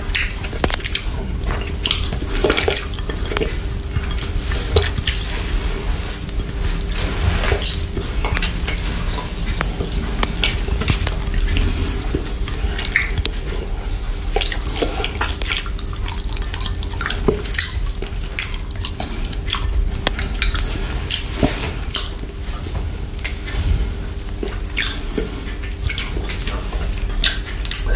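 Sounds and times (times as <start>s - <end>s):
wet mouth licking and sucking: 0.1s - 22.4s.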